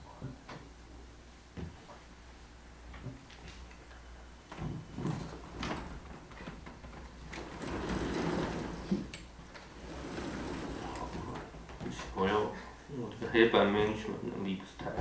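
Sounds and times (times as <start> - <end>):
chalkboard panels sliding rumble: 4.6 - 12.2.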